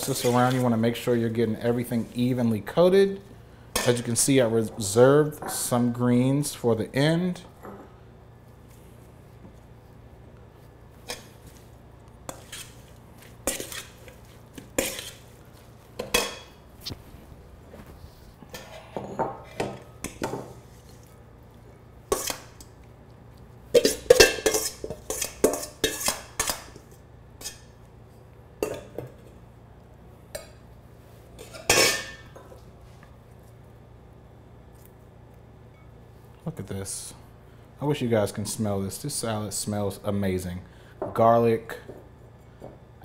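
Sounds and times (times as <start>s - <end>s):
metal bowl clanking and scraping: 0.0s - 0.7s, 13.4s - 15.3s, 18.4s - 20.2s, 23.8s - 26.6s, 31.4s - 32.4s.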